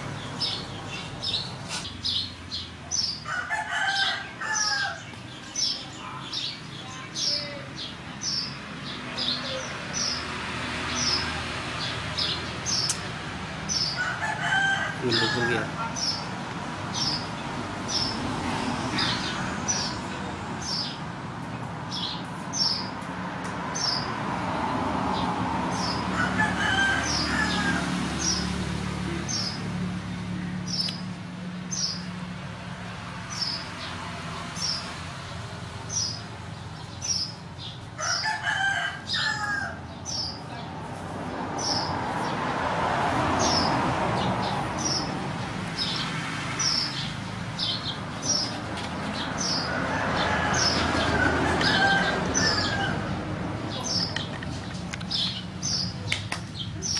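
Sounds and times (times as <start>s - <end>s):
rooster crowing: 3.2s - 5.1s, 13.8s - 15.9s, 25.8s - 28.4s, 38.0s - 39.9s, 49.4s - 53.3s.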